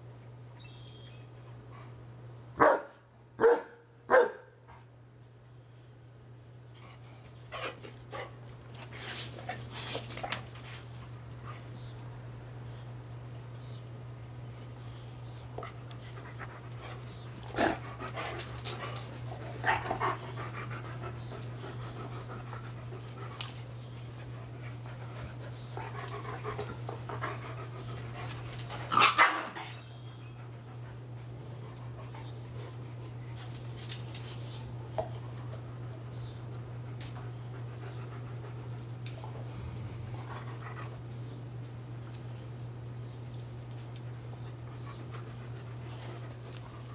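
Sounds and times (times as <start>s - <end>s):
dogs panting: 14.8s - 29.0s, 30.2s - 41.7s, 43.8s - 46.9s.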